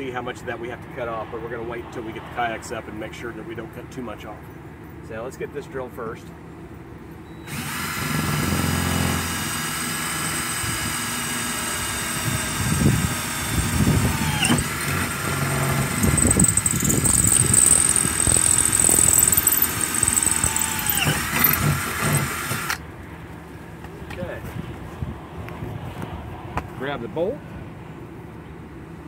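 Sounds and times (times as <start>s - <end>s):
cordless drill boring through metal: 7.5s - 22.8s
drill bit high squeal: 13.2s - 22.7s.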